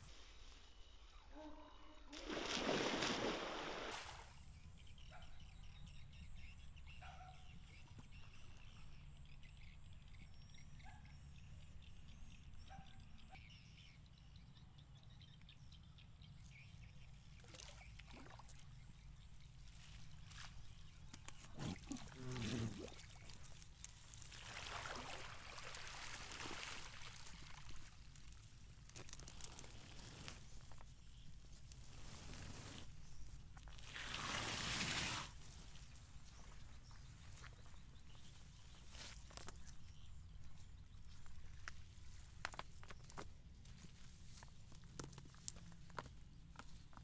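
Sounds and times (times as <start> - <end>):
quiet water sounds: 1.4 - 5.4, 14.8 - 47.0
net splashing into water: 2.2 - 4.3, 21.6 - 28.0, 33.8 - 35.4
water splashing and sloshing: 2.2 - 4.4, 17.3 - 18.9, 19.6 - 29.5, 33.6 - 37.8.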